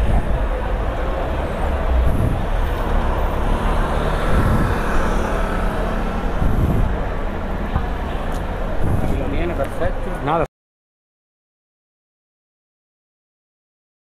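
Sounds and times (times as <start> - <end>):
city traffic rumble: 0.0 - 10.5.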